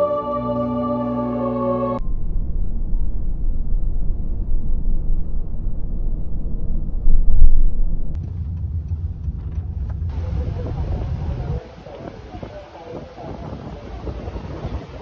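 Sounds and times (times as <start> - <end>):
road and engine rumble in vehicle: 8.0 - 15.0.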